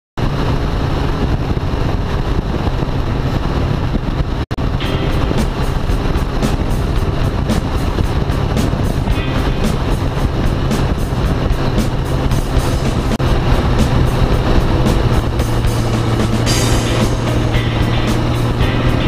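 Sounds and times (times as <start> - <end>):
motorcycle engine hum: 0.2 - 19.0
wind rushing: 0.2 - 19.0
background music: 4.6 - 19.0.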